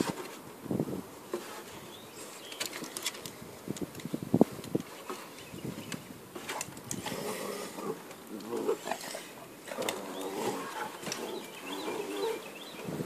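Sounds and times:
dogs growling while play-fighting: 7.0s - 12.6s.

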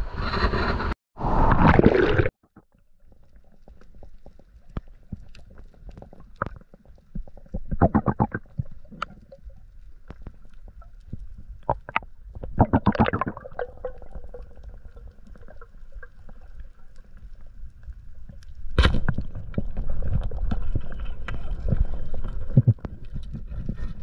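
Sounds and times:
bubbling gurgle: 1.5s - 2.3s, 3.1s - 18.4s
underwater clicks and crackles: 1.7s - 24.0s.

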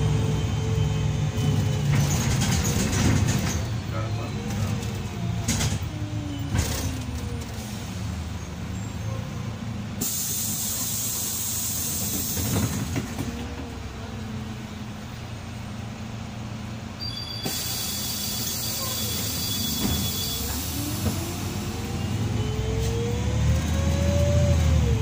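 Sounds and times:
bus diesel engine running: 0.0s - 25.0s
compressed air hiss: 10.0s - 12.5s, 17.4s - 19.5s.

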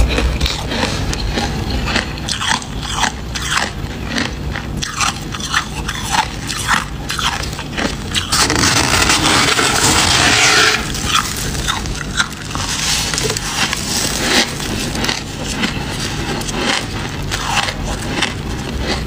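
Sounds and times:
frost being chewed: 0.0s - 19.0s.

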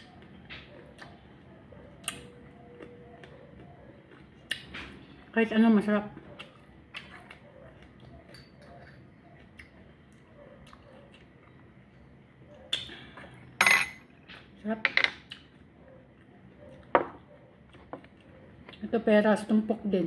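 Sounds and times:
dishes and utensils clinking: 13.6s - 14.1s.

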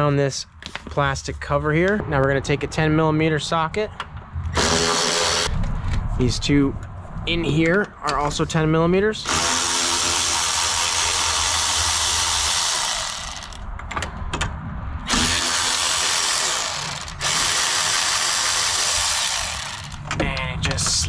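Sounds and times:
cordless ratchet spinning: 4.6s - 5.6s, 9.2s - 13.7s, 15.1s - 20.1s.

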